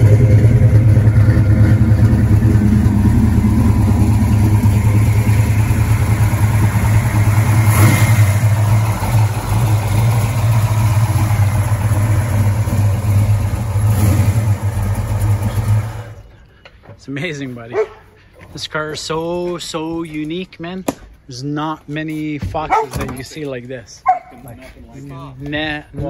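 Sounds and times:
vee eight engine idling loudly: 0.0 - 16.3.

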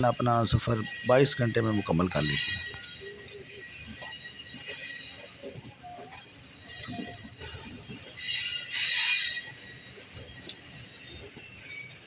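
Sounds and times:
moving train rumble and clatter: 0.0 - 12.0
train wheels screeching: 0.0 - 12.0.

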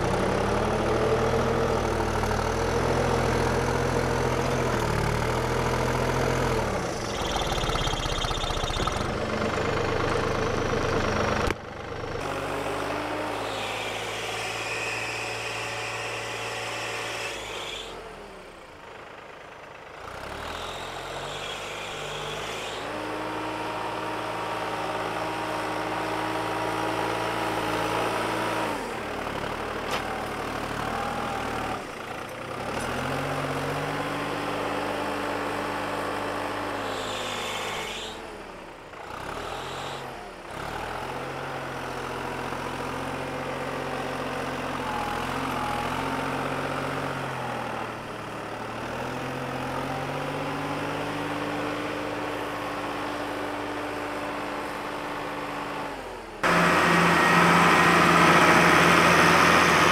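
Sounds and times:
diesel tractor engine revving: 0.0 - 59.9
higher whine: 7.0 - 9.2.

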